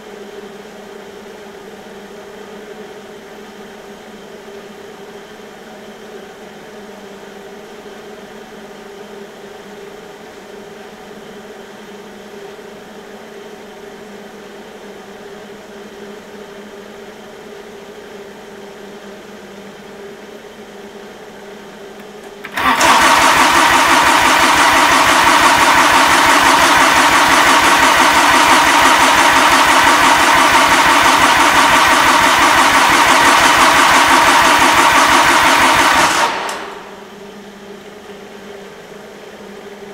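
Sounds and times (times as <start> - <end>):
diesel engine cranking on starter: 22.3 - 37.0.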